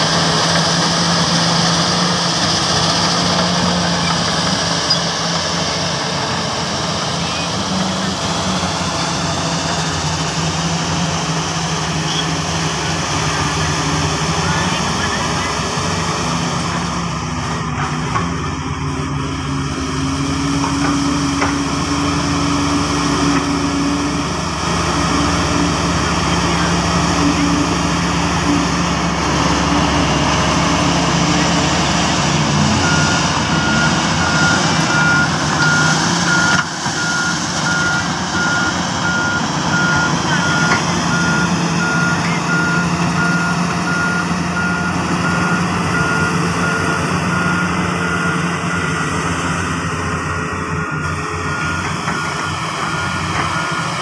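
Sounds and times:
roller diesel engine running: 0.0s - 54.0s
reversing alarm beeping: 19.0s - 54.0s.

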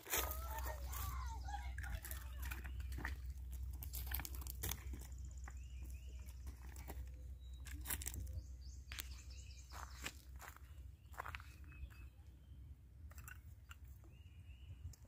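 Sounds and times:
clicks and crunches on gravel: 0.0s - 12.1s
steady low rumble: 0.0s - 13.1s
faint bird chirps: 5.0s - 15.0s.

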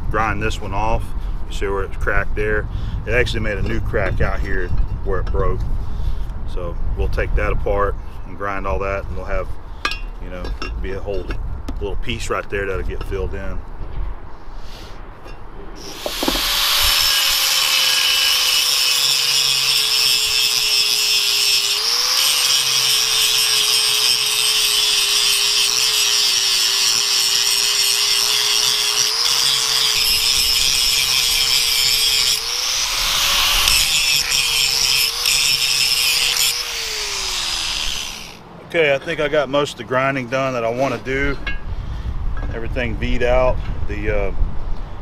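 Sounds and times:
angle grinder grinding metal: 15.8s - 38.4s.

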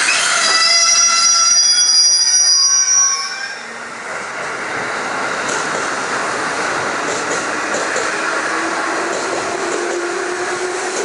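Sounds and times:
train wheel squeal: 0.0s - 3.8s
electric train rushing past: 0.0s - 11.0s.

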